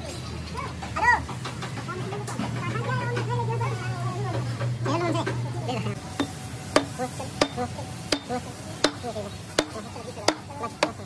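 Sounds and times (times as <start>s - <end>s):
sledgehammer knocking wooden block: 9.6s - 11.0s.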